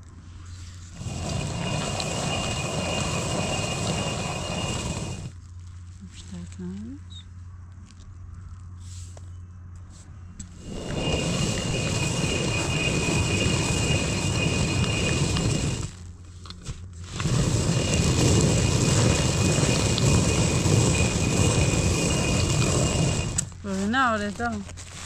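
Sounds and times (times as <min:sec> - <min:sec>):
hand quern grinding grain: 0:00.5 - 0:05.9, 0:10.6 - 0:25.0.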